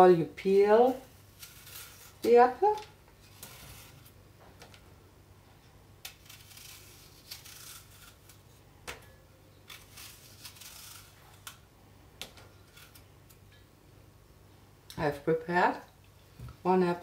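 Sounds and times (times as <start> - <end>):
knife scraping apple skin: 0.8 - 4.1, 6.0 - 8.6, 9.6 - 11.6, 12.5 - 13.4.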